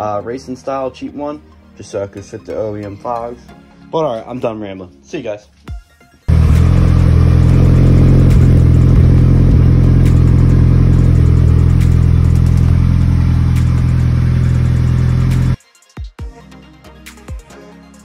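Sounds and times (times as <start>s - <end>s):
car engine idling: 6.3s - 15.6s.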